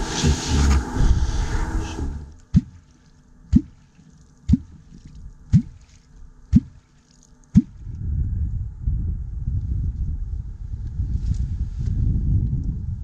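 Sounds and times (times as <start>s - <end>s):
deep bloop of clonk in water: 2.4s - 2.9s, 3.5s - 3.8s, 4.5s - 5.9s, 6.5s - 6.8s, 7.5s - 7.8s.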